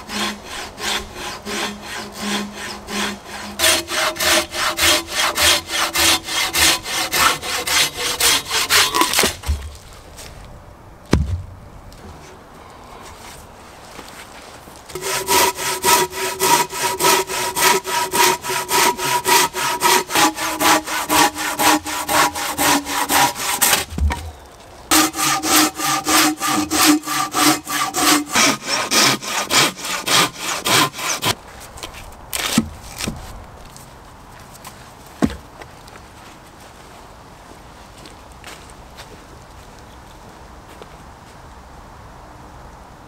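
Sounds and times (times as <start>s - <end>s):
hand saw cutting a log: 0.0s - 9.5s, 14.9s - 24.2s, 24.9s - 31.4s, 32.4s - 33.1s
sharp knocks: 11.1s - 11.6s.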